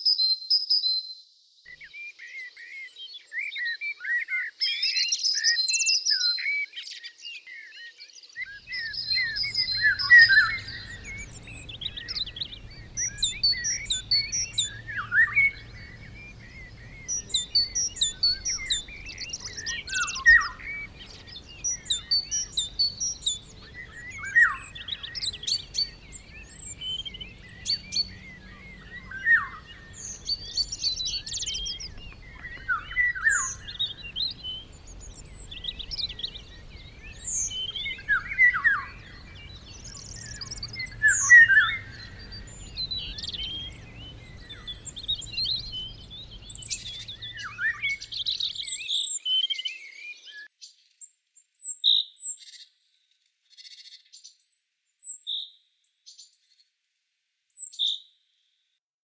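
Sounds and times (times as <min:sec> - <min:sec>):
warbling birdsong: 0:01.7 - 0:50.5
high bird chirps: 0:08.5 - 0:50.4.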